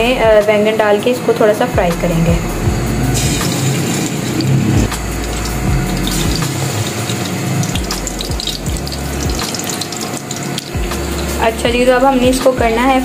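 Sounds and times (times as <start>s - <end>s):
hot oil sizzling: 2.8s - 13.0s.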